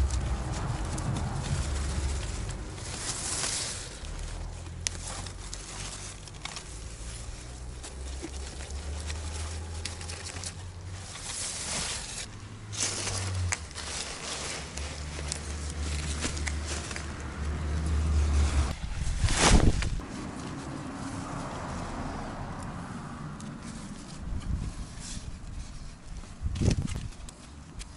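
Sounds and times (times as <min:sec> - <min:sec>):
steady low rumble: 0:00.0 - 0:20.4
plants rustling and crackling: 0:00.0 - 0:27.9.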